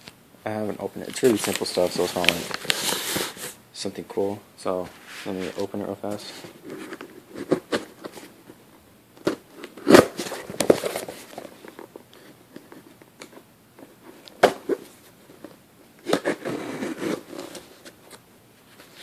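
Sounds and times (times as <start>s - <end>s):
packaging rustling and tearing: 1.0s - 3.6s, 9.3s - 12.0s.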